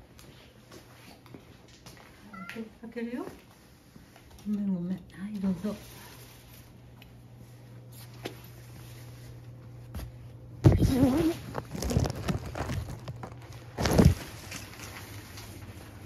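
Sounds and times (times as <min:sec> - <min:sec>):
cat meowing: 0:02.3 - 0:02.7
rustling: 0:10.8 - 0:16.0.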